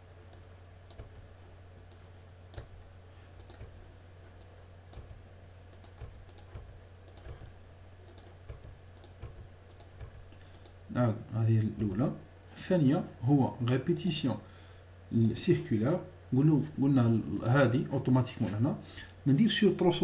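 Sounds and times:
steady low hum: 0.0 - 20.0
mouse and keyboard clicking: 3.4 - 3.8, 4.4 - 10.8.

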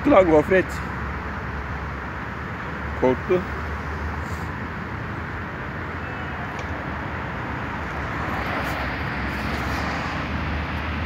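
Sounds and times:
road traffic rushing: 0.0 - 11.0.

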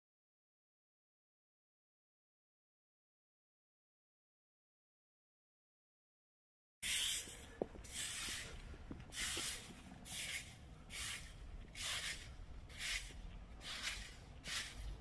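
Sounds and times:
footsteps on wet stone: 7.6 - 9.9.

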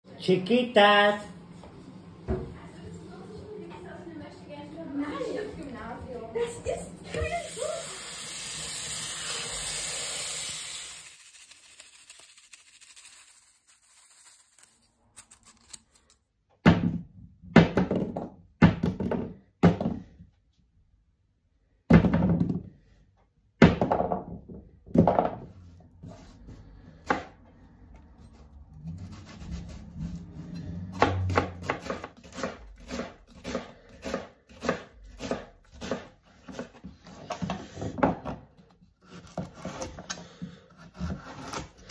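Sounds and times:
tap water running into colander: 7.1 - 13.7
knife chopping on wooden board: 30.9 - 36.8.

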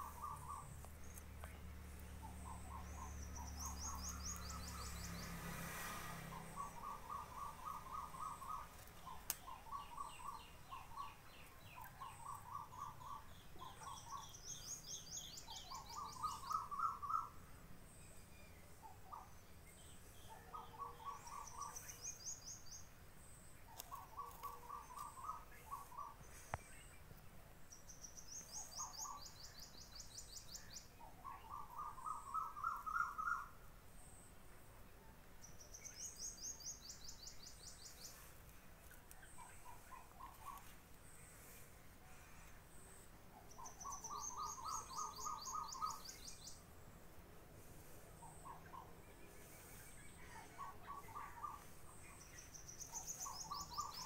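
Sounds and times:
birds singing in rapid trills: 0.0 - 5.6, 6.3 - 27.1, 27.7 - 33.6, 35.4 - 38.4, 39.0 - 41.6, 42.2 - 46.7, 47.8 - 54.0.

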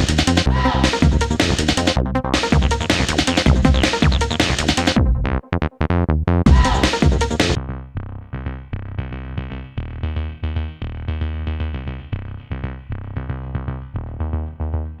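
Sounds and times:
electronic music with drum-machine beat: 0.0 - 5.6, 6.5 - 7.6.

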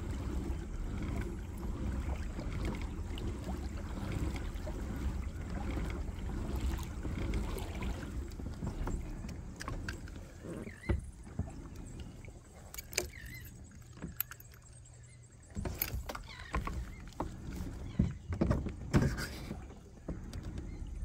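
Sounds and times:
water lapping against kayak hull: 0.0 - 21.0
light knocks on hull: 0.2 - 13.2, 15.5 - 21.0.

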